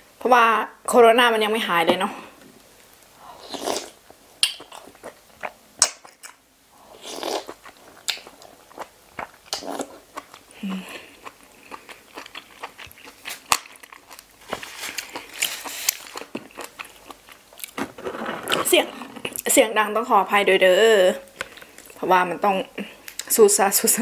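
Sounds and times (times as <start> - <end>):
sucking and slurping: 3.2 - 5.9, 6.8 - 13.3, 14.6 - 17.1
crunchy chewing: 3.4 - 19.5.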